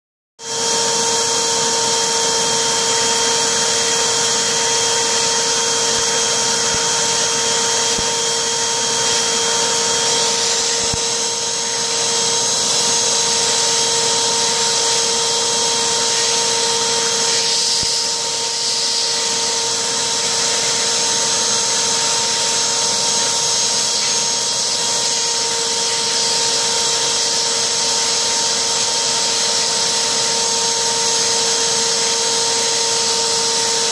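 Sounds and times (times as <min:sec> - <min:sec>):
vacuum cleaner motor whine: 0:00.4 - 0:33.9.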